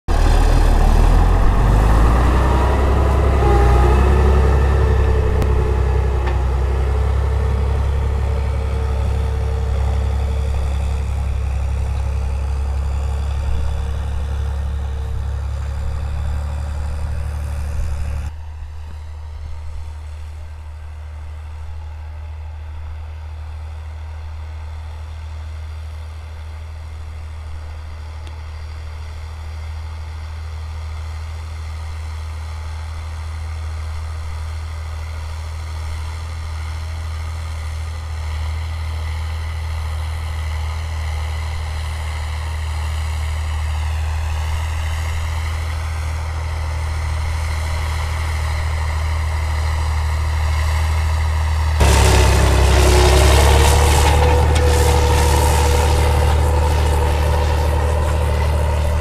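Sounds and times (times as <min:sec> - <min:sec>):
deep engine drone: 0:00.0 - 0:59.0
tractor diesel engine running: 0:00.0 - 0:59.0.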